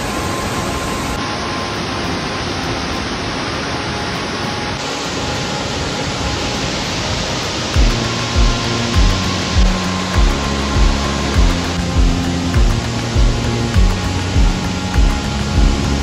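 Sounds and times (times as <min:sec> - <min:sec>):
waterfall rushing: 0:00.0 - 0:16.0
background music beat: 0:07.7 - 0:16.0.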